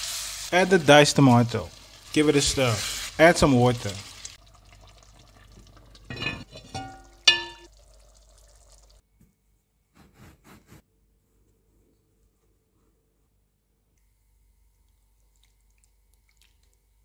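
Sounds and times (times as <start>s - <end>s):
curry simmering hiss: 0.0s - 6.1s
cookware clinks: 6.1s - 7.7s.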